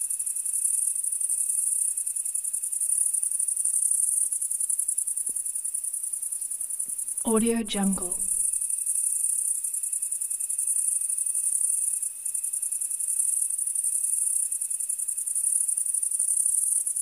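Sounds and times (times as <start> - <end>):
crickets chirping: 0.0 - 7.2, 8.2 - 17.0
faint low steady tone: 7.3 - 8.5.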